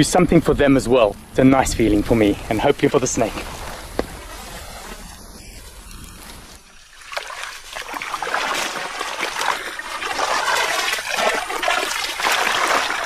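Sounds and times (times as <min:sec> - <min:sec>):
water splashing and sloshing: 0:06.8 - 0:13.0.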